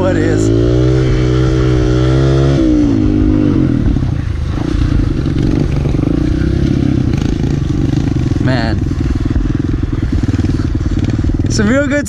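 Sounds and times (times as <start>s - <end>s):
small motorbike engine revving: 0.3s - 3.9s.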